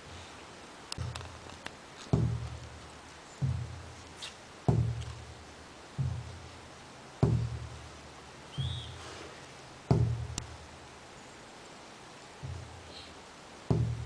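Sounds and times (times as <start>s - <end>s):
large drum booming: 2.2s - 2.6s, 3.4s - 4.0s, 4.7s - 5.4s, 6.0s - 6.5s, 7.2s - 7.9s, 9.9s - 10.5s, 13.7s - 14.0s.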